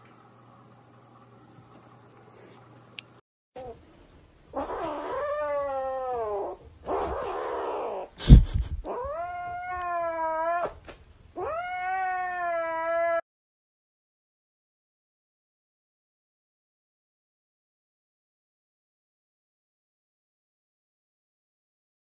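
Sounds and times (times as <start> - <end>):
kitten yowling: 4.6 - 8.1, 8.8 - 10.8, 11.4 - 13.2
kitten breathy cry: 4.6 - 10.8, 11.4 - 13.2.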